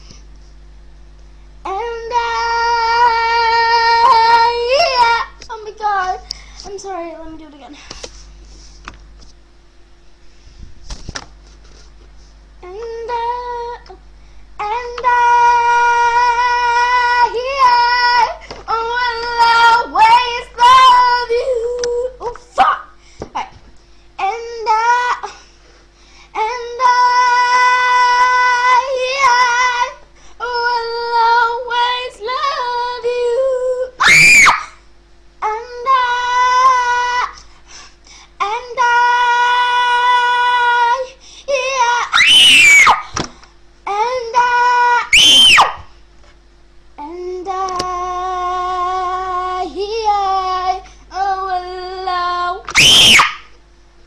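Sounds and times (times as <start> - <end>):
girl singing long notes: 1.6 - 7.5, 14.6 - 22.6, 26.4 - 34.4, 35.4 - 37.4, 38.4 - 42.2, 47.0 - 52.8
girl screaming: 34.0 - 34.8, 41.6 - 43.1, 44.3 - 45.8, 52.7 - 53.5
high-pitched shriek: 52.8 - 53.5.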